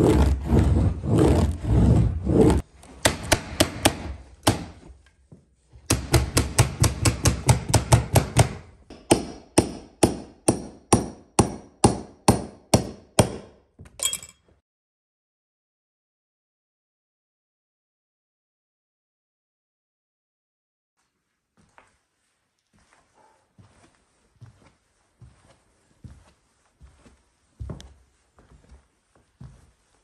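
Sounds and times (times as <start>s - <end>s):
rough scraping noise: 0.0s - 2.7s.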